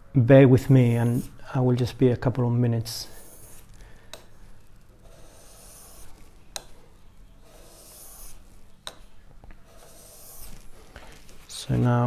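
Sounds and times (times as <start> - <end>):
blade scraping on whetstone: 3.1 - 3.7, 5.0 - 6.2, 7.4 - 8.5, 9.7 - 10.8.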